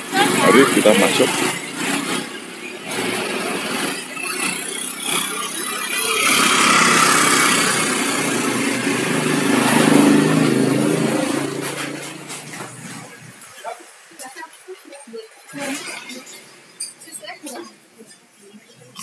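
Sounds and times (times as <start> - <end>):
motor scooter riding past: 0.0 - 13.2.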